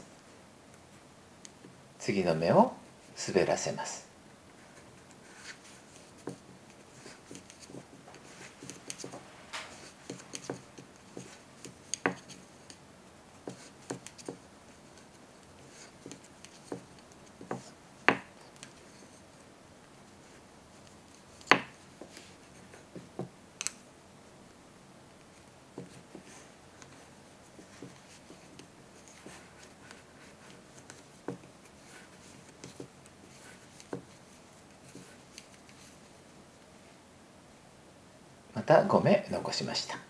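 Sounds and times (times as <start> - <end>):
soft rubbing of yarn: 4.5 - 23.3, 25.2 - 37.0
knitting needles clicking: 23.6 - 23.8.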